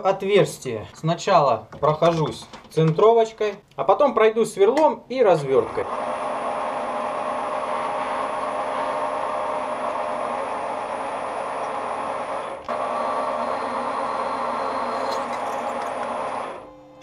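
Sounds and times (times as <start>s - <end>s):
metal lathe running: 5.8s - 16.7s.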